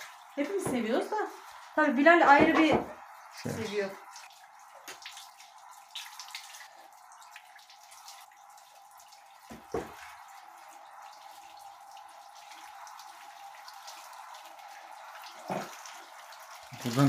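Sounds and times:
tap running into sink: 9.4 - 10.1.

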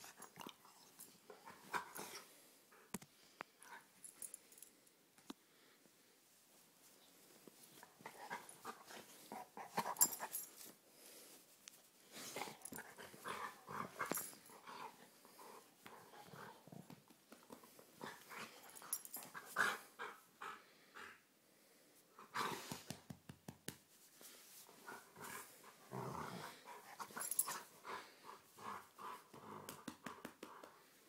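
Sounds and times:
dog growling and huffing: 24.9 - 28.0.

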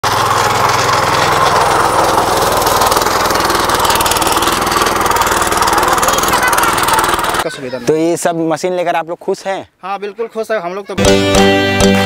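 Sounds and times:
power weeder engine running: 0.0 - 7.5
tines churning soil: 0.0 - 7.5.

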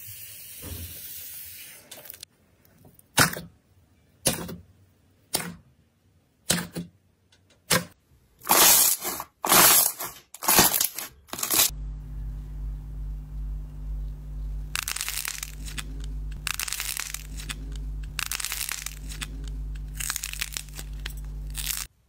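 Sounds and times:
low steady hum: 11.4 - 21.9
slime popping and squishing: 18.1 - 21.9.

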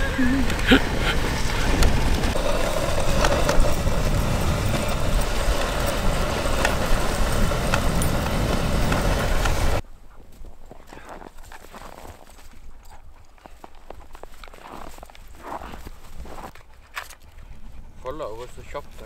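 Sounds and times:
wind rumbling on microphone: 0.0 - 9.8
sled runners scraping on snow: 0.0 - 19.0.

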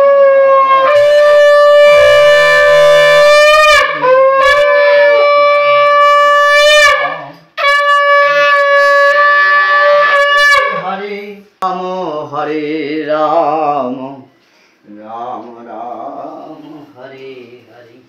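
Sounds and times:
conch shell blasts: 0.0 - 10.9.

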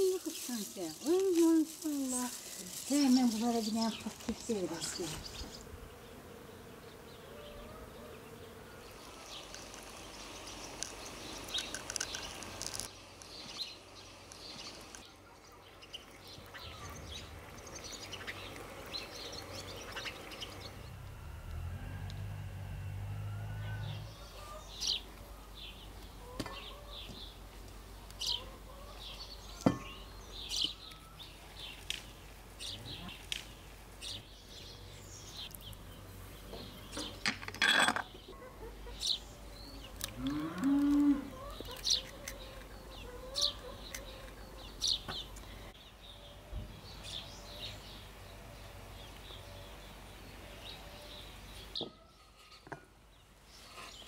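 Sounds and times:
small birds chirping: 0.0 - 22.9, 23.5 - 37.4, 38.0 - 54.0
cow mooing: 20.7 - 24.4, 40.1 - 41.4.

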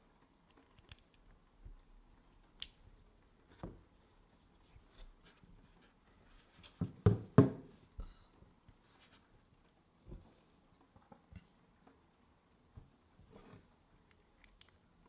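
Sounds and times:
light clicks and taps of tools: 0.2 - 3.7, 14.0 - 14.9.

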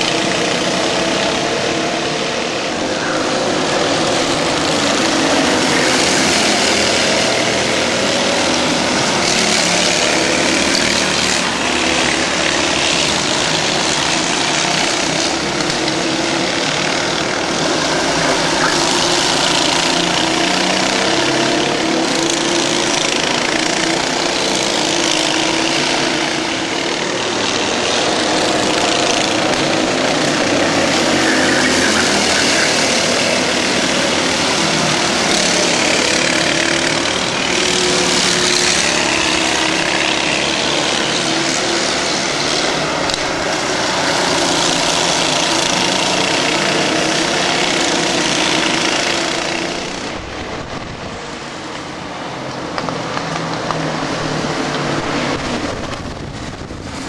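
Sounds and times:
racing kart engines passing: 0.0 - 57.0.

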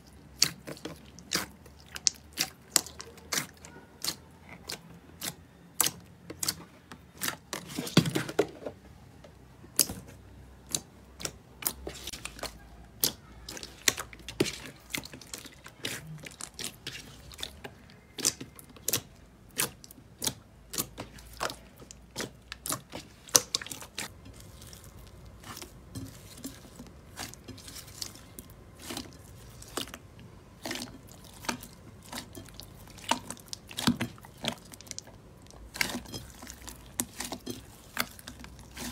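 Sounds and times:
slime squelch: 0.0 - 8.4, 9.4 - 38.9.

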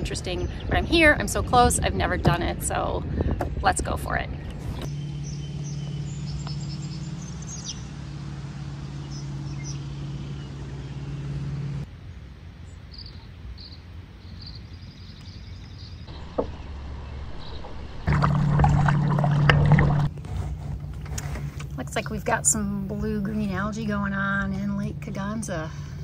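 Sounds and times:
steady low hum: 4.2 - 15.2, 15.9 - 26.0
small birds chirping: 4.5 - 11.9, 12.6 - 18.1.

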